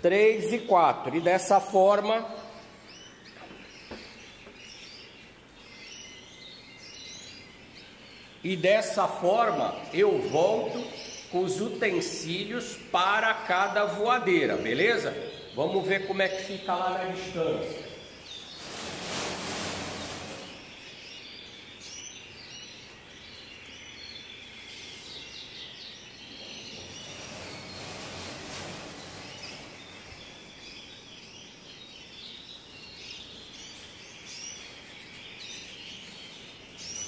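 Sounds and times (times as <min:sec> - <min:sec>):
canaries chirping and twittering: 0:00.0 - 0:37.0
rustling hiss: 0:17.1 - 0:20.9, 0:26.7 - 0:30.4.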